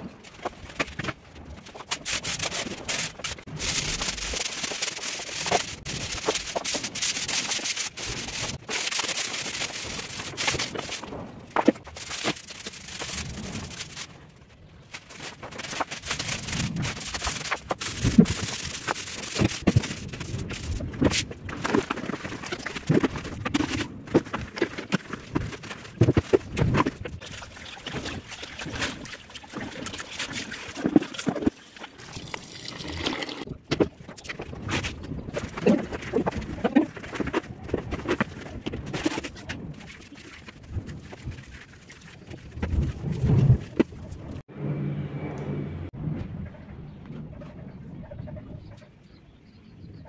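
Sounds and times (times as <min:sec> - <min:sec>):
broom sweeping tiled floor: 0:00.3 - 0:14.1, 0:14.9 - 0:28.0.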